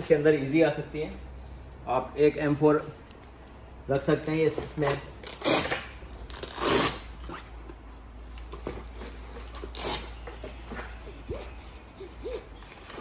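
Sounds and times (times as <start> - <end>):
hook-and-loop strap tearing: 4.8 - 7.4.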